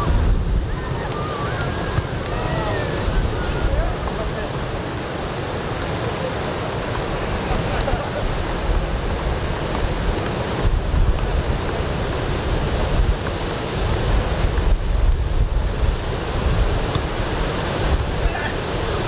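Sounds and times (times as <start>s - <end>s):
surf washing onto beach: 0.0s - 19.0s
wind gusting on microphone: 0.0s - 19.0s.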